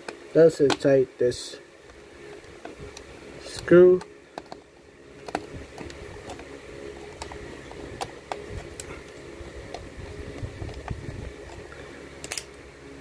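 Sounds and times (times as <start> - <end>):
faint steady hum: 0.0 - 13.0
screwdriver clicking on plastic: 2.4 - 8.9.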